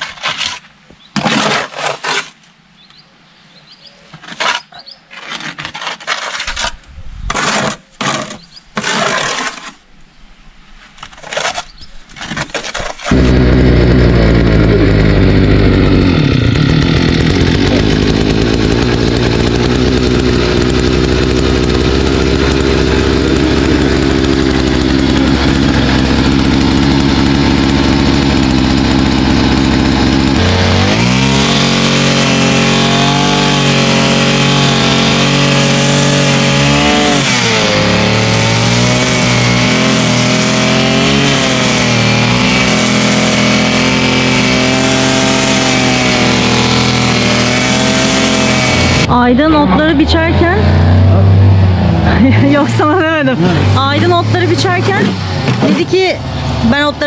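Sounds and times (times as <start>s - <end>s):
brush cutter engine running: 13.1s - 57.0s.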